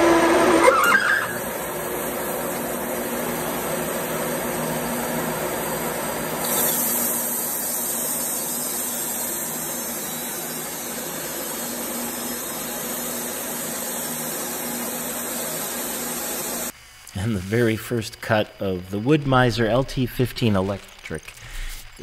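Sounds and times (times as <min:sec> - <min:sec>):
bandsaw mill running: 0:00.0 - 0:22.0
blade hissing through wood: 0:01.3 - 0:22.0.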